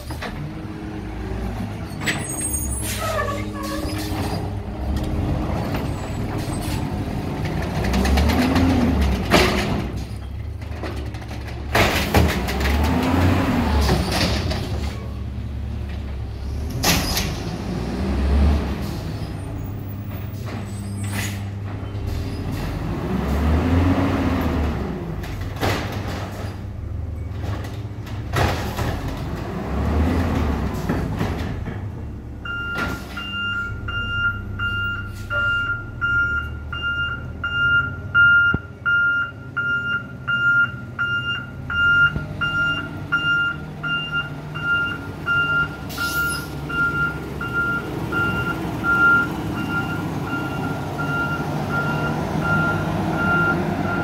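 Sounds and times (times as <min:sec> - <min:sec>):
garbage truck engine revving: 0:00.0 - 0:35.2, 0:41.6 - 0:54.0
reversing alarm beeping: 0:32.4 - 0:54.0.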